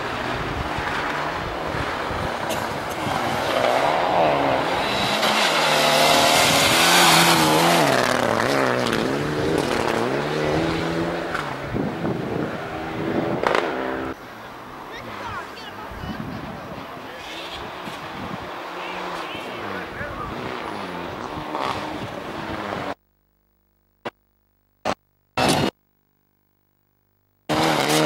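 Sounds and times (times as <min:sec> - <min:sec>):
rally car engine revving: 0:00.0 - 0:14.2, 0:16.4 - 0:23.0, 0:27.5 - 0:28.0.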